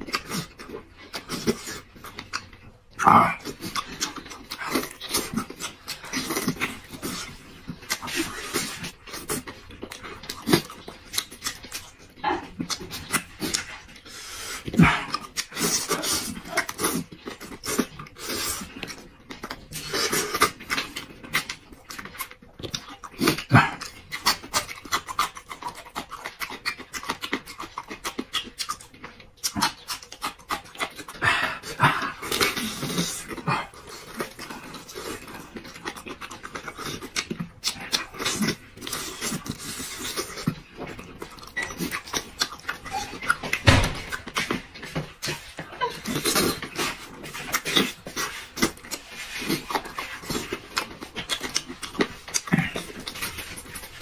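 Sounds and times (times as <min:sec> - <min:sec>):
man chewing wetly: 0:00.0 - 0:54.0
sucking and slurping: 0:44.2 - 0:54.0.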